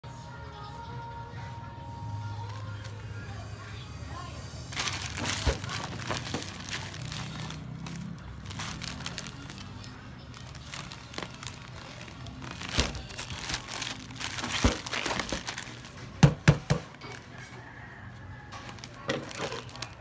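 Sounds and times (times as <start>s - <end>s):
plastic pouch crinkling: 4.7s - 16.4s, 18.6s - 20.0s.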